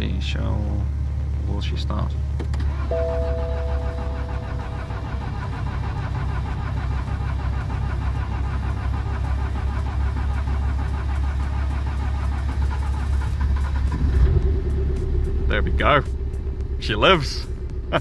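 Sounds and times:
diesel engine cranking on starter: 0:02.3 - 0:18.0
two-tone dashboard warning chime: 0:02.7 - 0:06.3.

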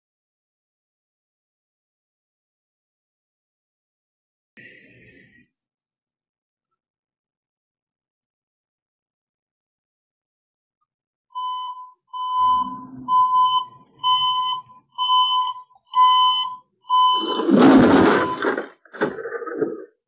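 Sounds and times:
reversing alarm beeping: 0:11.4 - 0:18.7
loud rough crunch against fence: 0:17.2 - 0:19.8.

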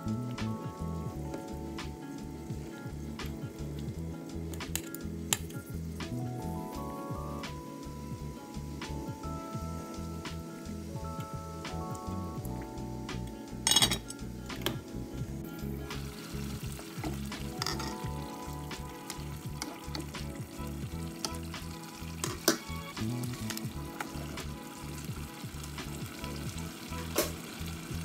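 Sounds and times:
stew simmering: 0:14.2 - 0:28.0.

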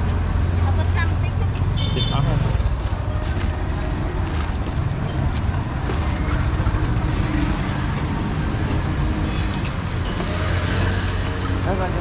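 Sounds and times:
vehicle engines rumbling: 0:00.0 - 0:12.0.

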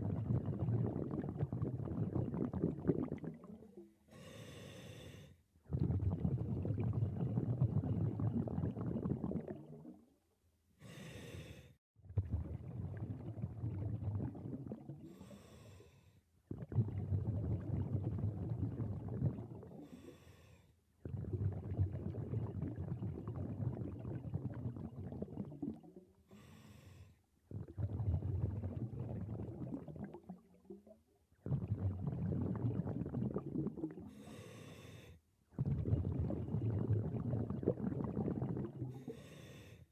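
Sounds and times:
exhaled bubbles rumbling: 0:00.0 - 0:03.9, 0:05.6 - 0:10.2, 0:12.0 - 0:15.2, 0:16.4 - 0:20.0, 0:21.0 - 0:26.2, 0:27.4 - 0:34.2, 0:35.5 - 0:39.2
regulator inhale hiss: 0:04.1 - 0:05.4, 0:10.8 - 0:11.8, 0:15.1 - 0:16.2, 0:19.8 - 0:20.7, 0:26.3 - 0:27.2, 0:34.2 - 0:35.2, 0:39.0 - 0:39.9.

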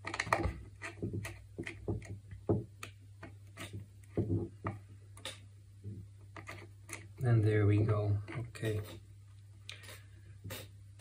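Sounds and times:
small clicks and taps on plastic: 0:00.0 - 0:07.1.

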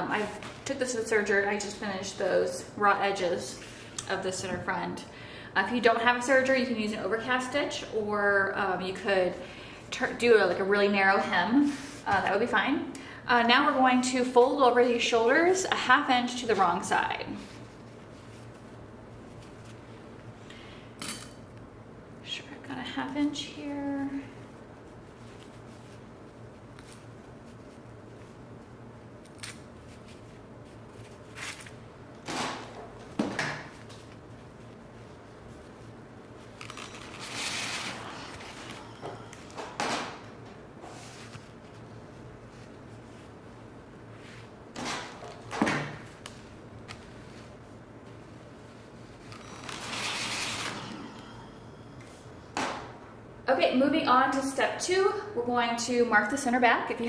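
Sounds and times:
low room hum: 0:00.0 - 0:57.0
fabric being handled: 0:15.7 - 0:20.4, 0:23.8 - 0:32.2, 0:32.8 - 0:38.8, 0:40.6 - 0:51.0.

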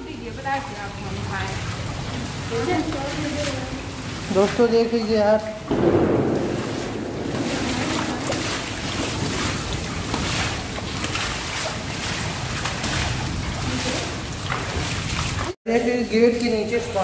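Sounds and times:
heavy rain: 0:00.0 - 0:15.6
water splashing: 0:00.0 - 0:17.0
wind on microphone: 0:05.7 - 0:11.0.

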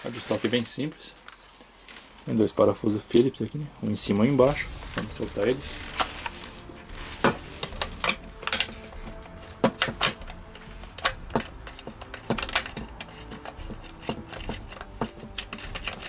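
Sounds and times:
clicks and knocks of handling: 0:07.2 - 0:16.0.

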